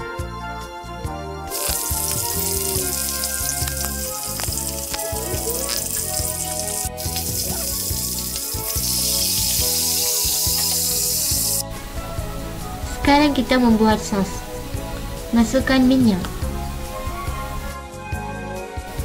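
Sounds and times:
fish frying in sizzling oil: 1.5 - 11.6.

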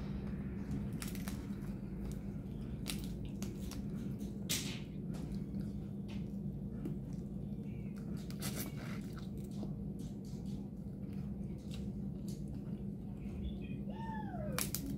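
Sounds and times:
steady low hum: 0.0 - 14.9
wet squishes: 0.2 - 13.0
crab shell cracking: 14.5 - 14.9.

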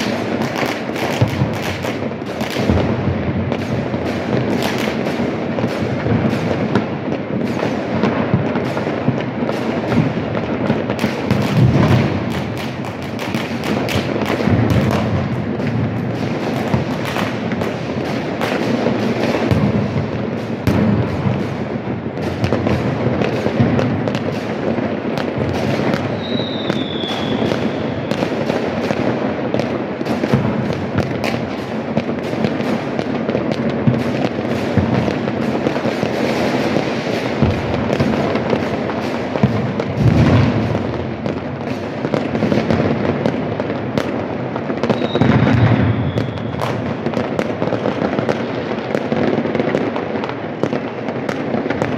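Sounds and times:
fireworks crackling and banging: 0.0 - 51.9
heavy firework blasts: 0.0 - 51.9
falling firework whistle: 25.2 - 28.4, 44.8 - 46.9.

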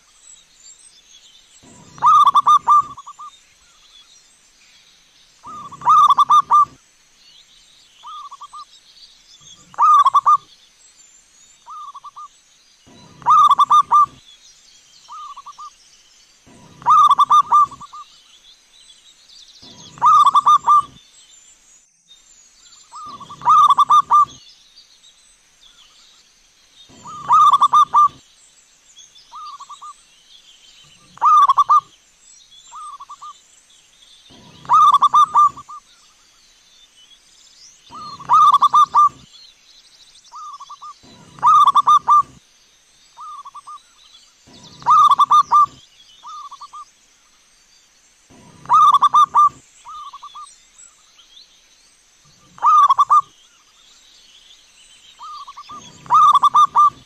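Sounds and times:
dove cooing: 1.6 - 3.3, 5.5 - 6.8, 9.6 - 10.4, 12.9 - 14.2, 16.5 - 18.0, 19.6 - 21.0, 23.0 - 24.4, 26.9 - 28.2, 31.0 - 31.9, 34.3 - 35.8, 37.9 - 39.2, 40.6 - 42.4, 44.5 - 46.6, 48.3 - 50.2, 52.4 - 53.3, 55.2 - 57.0.

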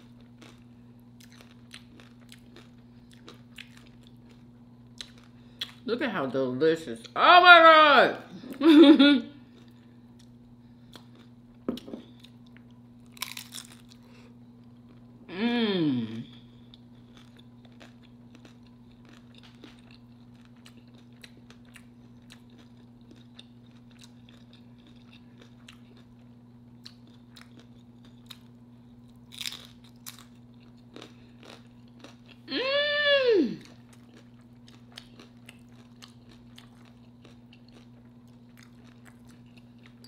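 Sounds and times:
crunching and chewing chips: 0.0 - 5.9, 9.4 - 15.2, 16.2 - 32.5, 33.6 - 40.0
steady low hum: 0.0 - 40.0
humming voice: 15.2 - 16.4, 32.5 - 33.7.

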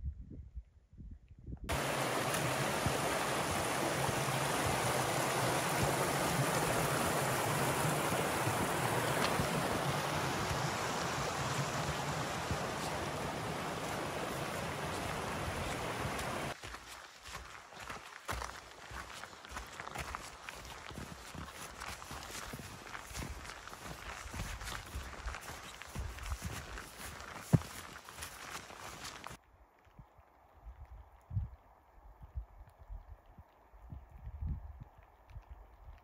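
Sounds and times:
stream rushing over stones: 1.7 - 29.4.

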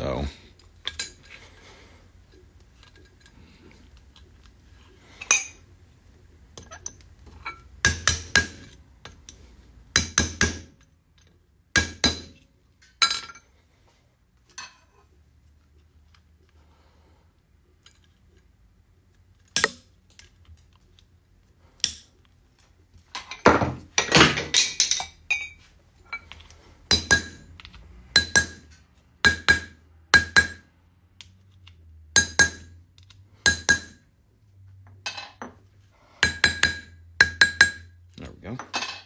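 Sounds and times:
hammer clinking on metal: 26.9 - 27.4, 28.2 - 28.7, 32.2 - 32.7, 36.2 - 37.9.

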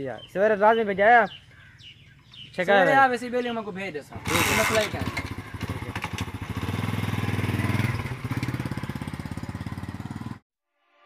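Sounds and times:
motorcycle engine putter: 4.2 - 6.7.

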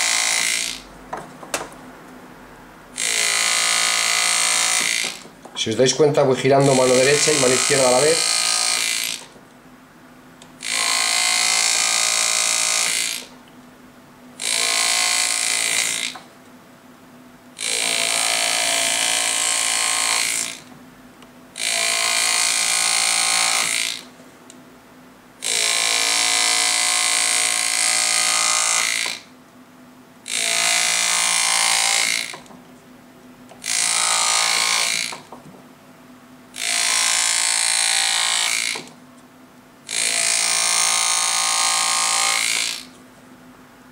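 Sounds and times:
pneumatic engraving tool buzzing: 0.0 - 0.9, 3.0 - 5.4, 6.6 - 9.4, 10.6 - 13.3, 14.4 - 16.3, 17.6 - 20.7, 21.6 - 24.1, 25.4 - 29.3, 30.3 - 32.5, 33.6 - 35.4, 36.6 - 39.0, 39.9 - 43.0.

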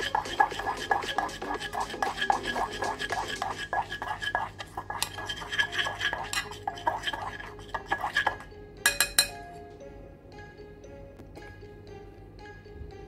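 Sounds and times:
chopstick scraping a saucepan: 0.0 - 9.3
soft background music: 0.0 - 13.0.

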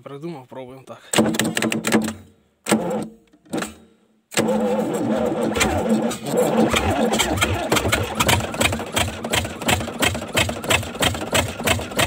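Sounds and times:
starter cranking diesel engine: 4.3 - 12.0.

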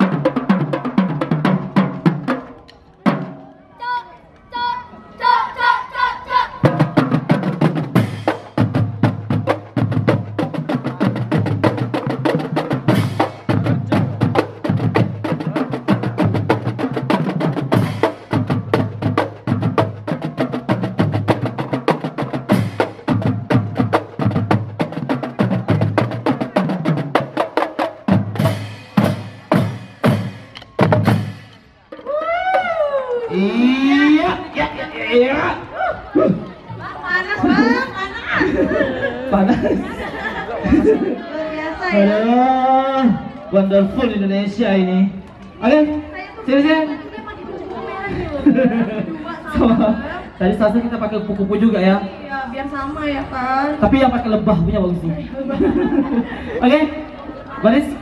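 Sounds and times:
marching drum line playing: 0.0 - 4.0, 5.6 - 32.7.

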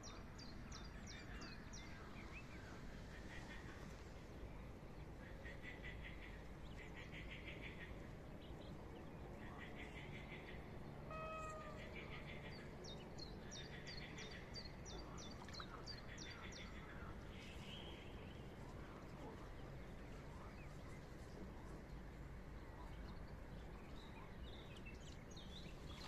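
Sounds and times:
short pitched animal call: 11.1 - 12.0.

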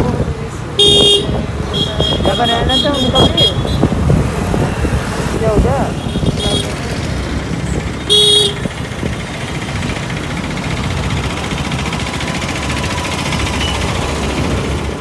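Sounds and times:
motorbike engine and road rumble: 0.0 - 15.0
vehicle horn honk: 0.8 - 3.8, 8.1 - 8.7.

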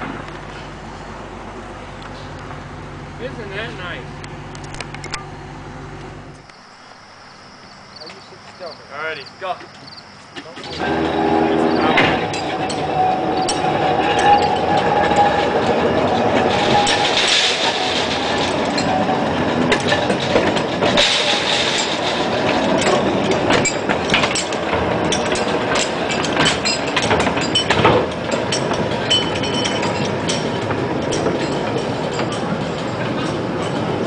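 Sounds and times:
steel wheels rumbling on rails: 0.0 - 5.0, 10.4 - 34.0
wheels and couplings clanking: 8.0 - 34.0.

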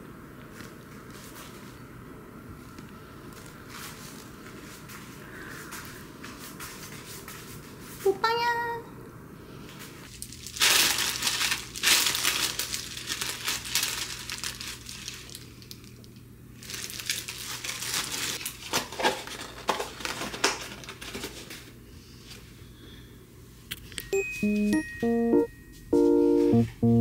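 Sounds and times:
thin plastic crinkling: 10.1 - 21.7.

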